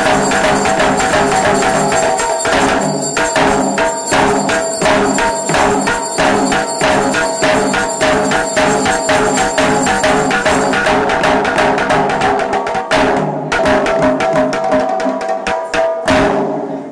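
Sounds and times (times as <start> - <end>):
piping melody: 0.0 - 12.6
fast drumming: 0.0 - 16.6.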